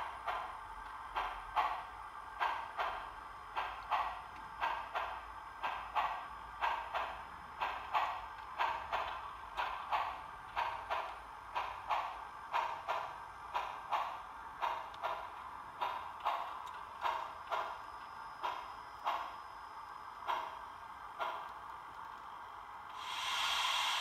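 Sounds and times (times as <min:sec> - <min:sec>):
model steam locomotive chuffing: 0:00.0 - 0:19.4, 0:20.2 - 0:21.7, 0:22.9 - 0:24.0.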